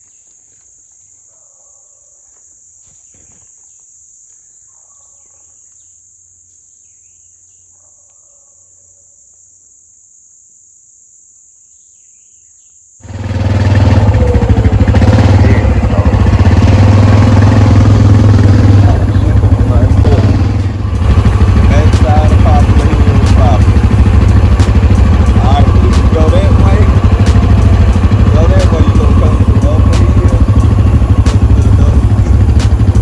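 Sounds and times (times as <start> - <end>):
faint bird chirps: 0.0 - 9.8, 11.6 - 12.9
high insect chorus: 0.0 - 33.0
atv engine running: 13.0 - 33.0.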